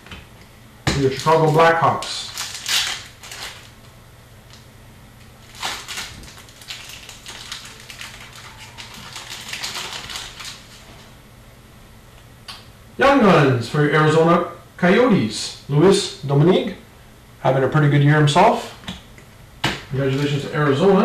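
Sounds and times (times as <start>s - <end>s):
trading cards rustling: 5.4s - 10.9s.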